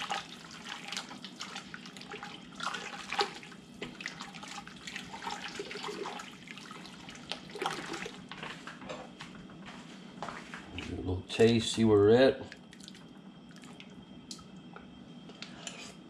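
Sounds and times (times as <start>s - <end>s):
liquid sloshing in a pot: 0.0s - 8.6s, 12.5s - 14.0s.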